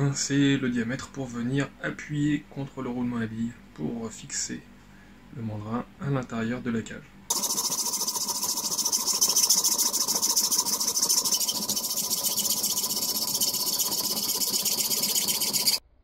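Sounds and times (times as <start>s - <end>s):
hacksaw cutting metal rod: 7.3s - 15.8s.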